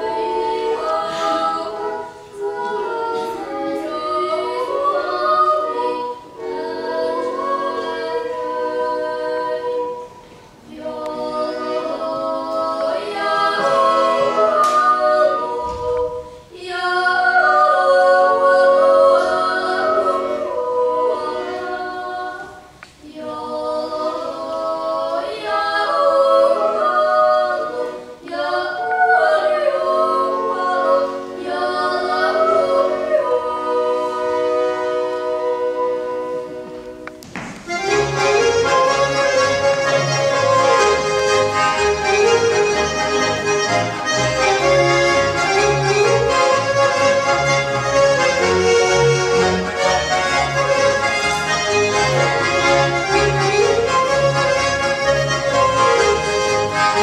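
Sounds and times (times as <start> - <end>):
group yodel singing a cappella: 0.0 - 36.8.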